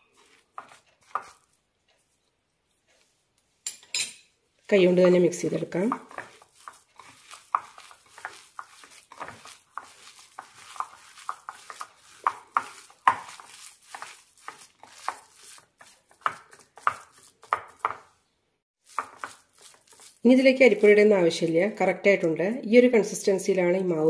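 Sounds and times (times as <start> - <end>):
hands squeezing crumbly mixture: 0.0 - 2.2, 5.4 - 18.2, 18.8 - 20.9.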